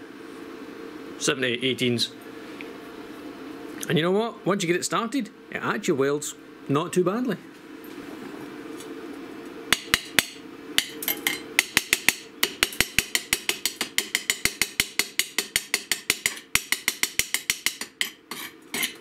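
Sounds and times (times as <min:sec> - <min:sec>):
chipping hammer tapping metal: 0:09.7 - 0:19.0.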